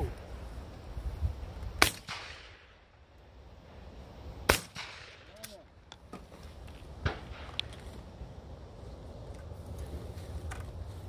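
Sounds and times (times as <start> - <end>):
shotgun shots: 1.8 - 2.7, 4.5 - 5.6.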